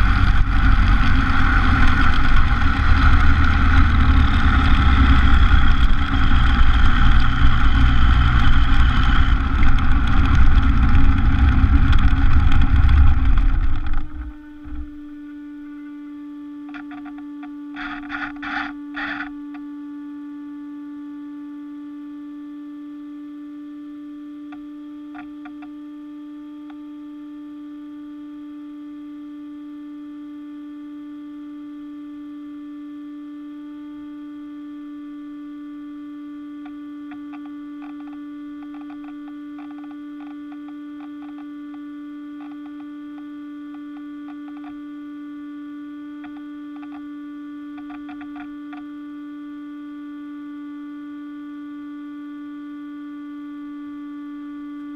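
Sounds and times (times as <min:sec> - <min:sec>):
low electrical hum: 0:00.0 - 0:54.9
faint crackling clicks: 0:05.4 - 0:14.9, 0:16.6 - 0:19.7, 0:24.5 - 0:25.8, 0:36.6 - 0:44.9, 0:46.1 - 0:47.1, 0:47.7 - 0:48.9.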